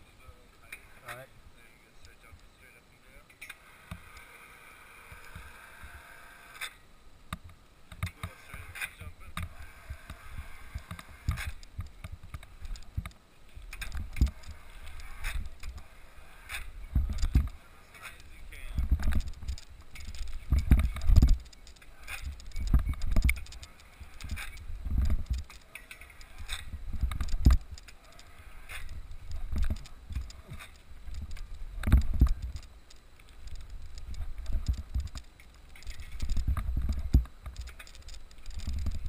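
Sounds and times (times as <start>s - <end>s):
trampoline rig clicks and rattles: 7.9s - 39.0s.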